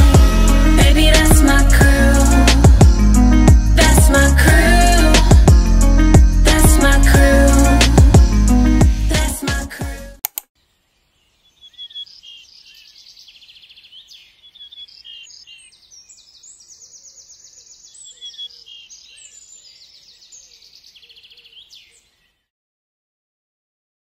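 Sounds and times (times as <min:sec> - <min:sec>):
birds chirping and trilling: 0:10.6 - 0:22.5.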